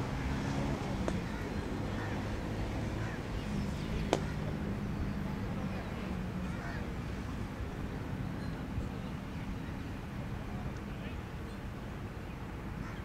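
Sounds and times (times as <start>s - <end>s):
sharp crack: 1.0s - 1.3s, 4.0s - 4.4s.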